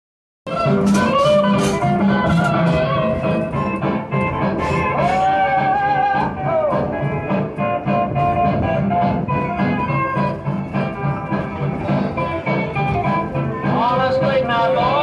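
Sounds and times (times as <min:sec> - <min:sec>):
guitar music: 0:00.5 - 0:15.0.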